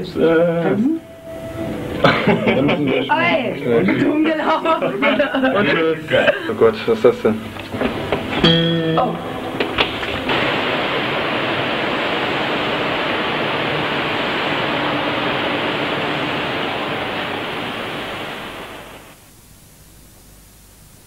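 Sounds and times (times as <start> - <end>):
loud rushing hiss: 1.0 - 3.7, 6.5 - 19.5.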